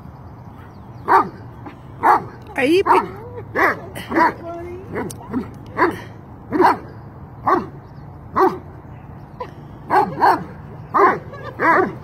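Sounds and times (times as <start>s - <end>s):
dog barking: 5.8s - 6.9s, 7.5s - 7.7s, 8.4s - 8.6s, 9.9s - 12.0s.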